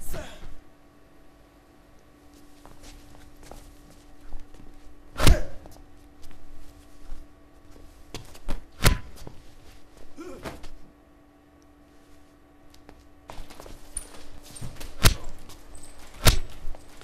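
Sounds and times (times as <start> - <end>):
low steady hum: 0.0 - 17.0
fist fight hits: 5.2 - 5.7, 8.2 - 9.3, 14.9 - 15.4, 16.1 - 16.6.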